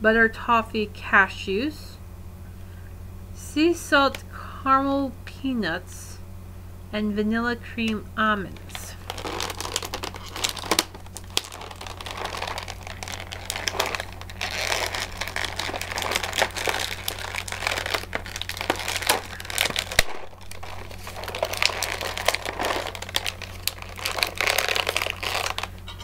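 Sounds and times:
plastic packaging crinkling: 0:08.5 - 0:25.9.

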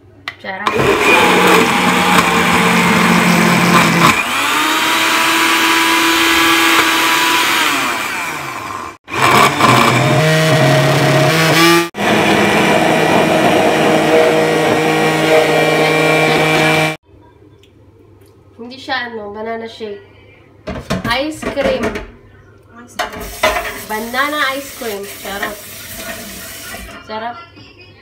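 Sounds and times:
electric blender running: 0:00.7 - 0:17.0.

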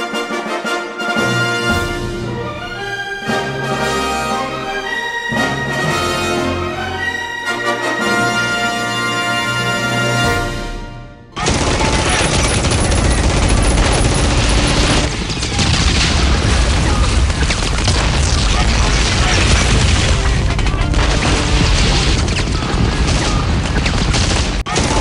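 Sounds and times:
music: 0:00.0 - 0:13.9, 0:19.2 - 0:23.6
continuous gunfire: 0:11.4 - 0:25.0
explosions: 0:11.4 - 0:25.0.

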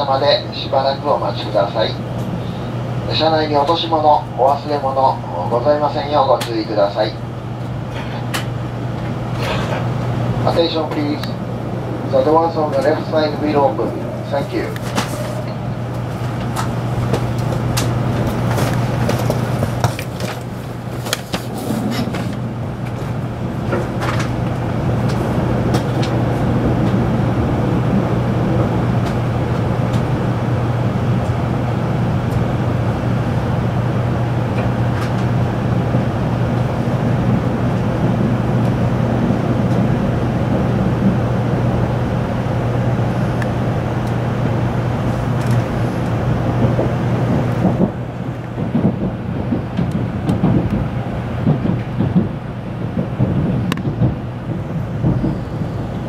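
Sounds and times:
train low hum: 0:00.0 - 0:56.0
train rushing hiss: 0:20.7 - 0:25.5.

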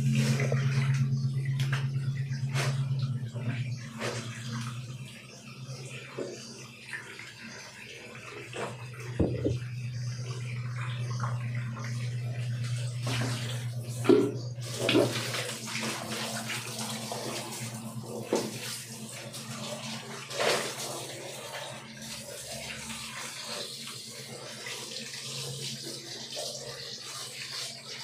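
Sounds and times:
steady low hum: 0:00.0 - 0:18.2
shower water splashing on tiles: 0:00.0 - 0:28.0
thumps and bumps: 0:09.2 - 0:09.6.

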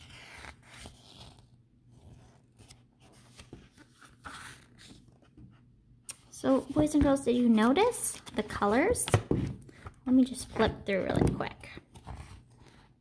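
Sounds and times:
book pages turning: 0:00.0 - 0:07.2, 0:11.6 - 0:12.9.

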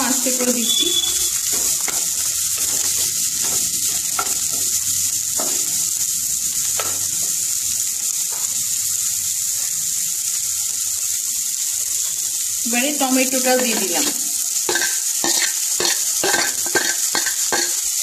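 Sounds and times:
vegetables sizzling in hot oil: 0:00.0 - 0:18.0.

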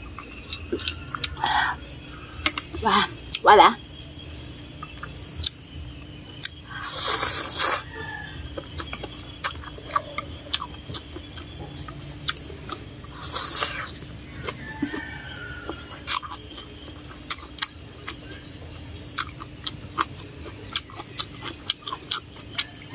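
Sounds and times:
wet chewing clicks: 0:00.0 - 0:01.4, 0:04.7 - 0:22.9
slurping noodles: 0:06.9 - 0:07.9.

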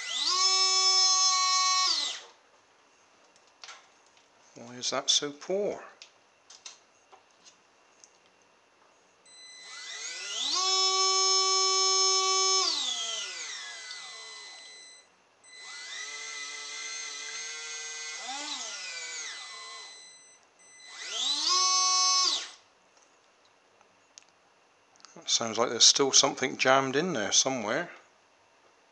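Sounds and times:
high-pitched speed controller whine: 0:00.0 - 0:02.4, 0:08.9 - 0:22.7
small water pump motor whining: 0:00.0 - 0:02.4, 0:09.3 - 0:22.6.

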